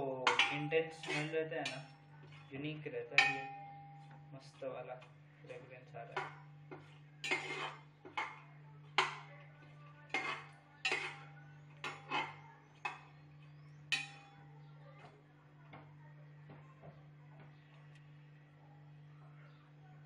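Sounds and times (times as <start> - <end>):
low steady hum: 0.0 - 20.0
metal spoon clinking on cooking pot: 0.1 - 4.3, 6.1 - 9.4, 10.1 - 13.2, 13.8 - 14.4.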